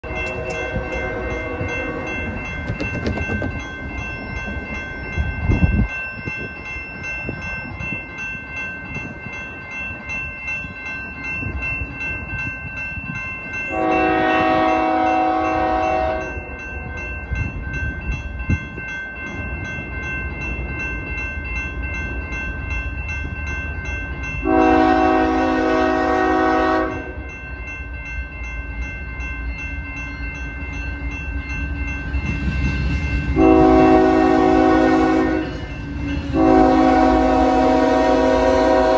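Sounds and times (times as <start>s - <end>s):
low rumble of train: 0.0s - 38.9s
railroad crossing bell ringing: 0.0s - 38.9s
locomotive air horn blasts: 0.2s - 2.1s, 13.7s - 16.4s, 24.4s - 27.2s, 33.4s - 35.7s, 36.3s - 38.9s.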